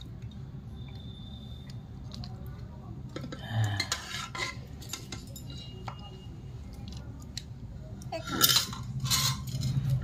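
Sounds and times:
steel spoon clinking and scraping: 3.8 - 5.9, 8.2 - 10.0.

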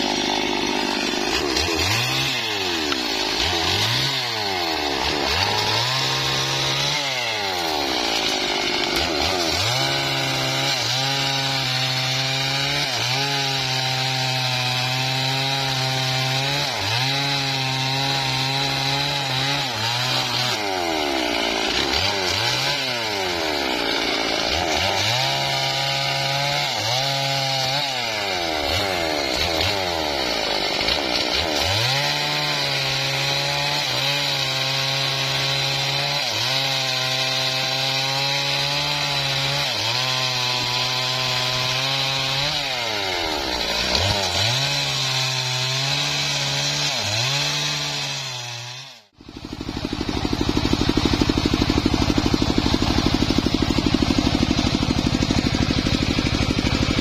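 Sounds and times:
chainsaw cutting log: 0.0 - 57.0.

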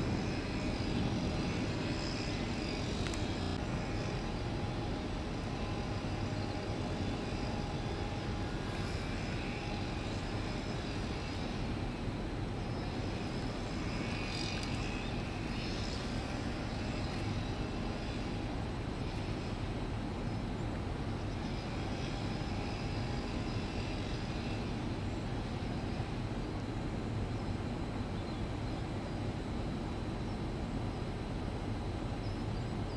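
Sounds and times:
machinery drone: 0.0 - 32.9.

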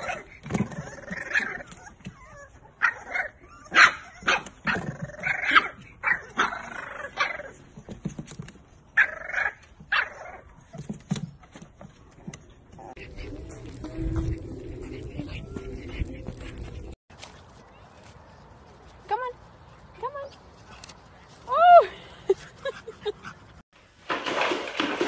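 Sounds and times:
puppy yipping and barking: 0.8 - 7.5.

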